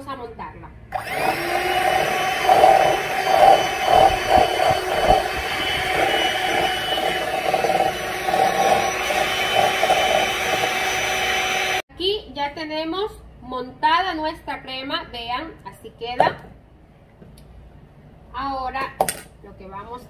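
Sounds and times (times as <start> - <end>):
electric mixer whipping cream: 1.0 - 11.8.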